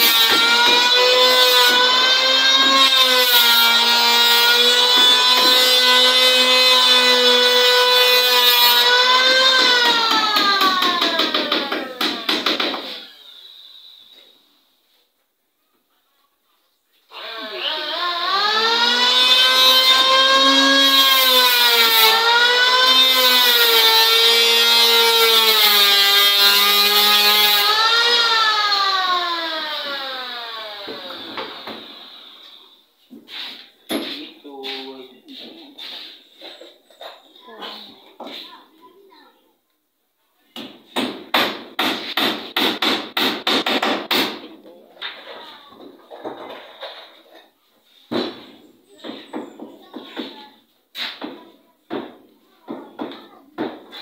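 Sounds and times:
electric planer shaving wood: 0:00.0 - 0:11.4, 0:17.1 - 0:32.6.

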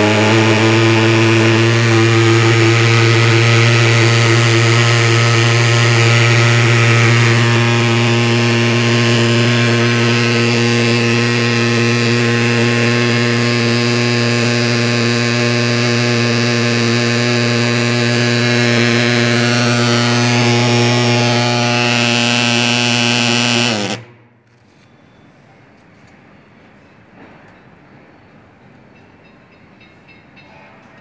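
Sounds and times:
pulse-jet engine buzzing drone: 0:00.0 - 0:24.3.

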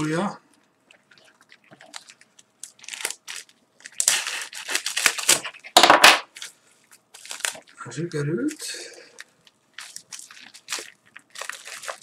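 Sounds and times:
bubble wrap packet tearing: 0:01.8 - 0:07.7, 0:09.2 - 0:12.0
knife slitting packet: 0:02.8 - 0:05.6, 0:09.8 - 0:12.0.

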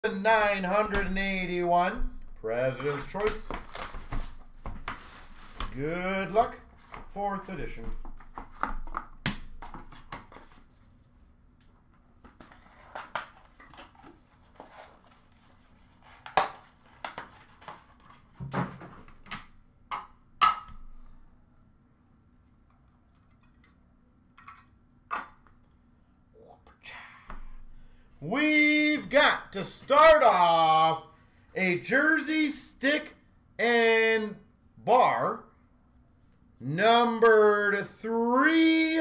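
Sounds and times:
plastic wrapping crinkling: 0:02.9 - 0:05.6.

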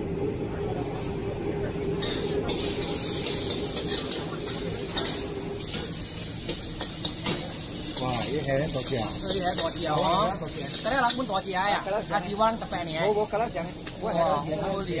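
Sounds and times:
metal ladle scraping wok: 0:02.0 - 0:11.3
prawns sizzling in hot oil: 0:02.0 - 0:15.0.

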